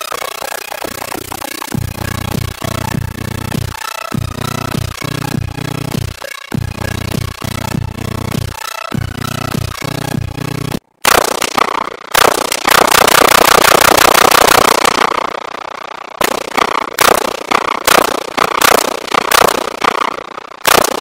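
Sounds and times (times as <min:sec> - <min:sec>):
rifle shots: 0:11.0 - 0:15.3, 0:16.2 - 0:21.0.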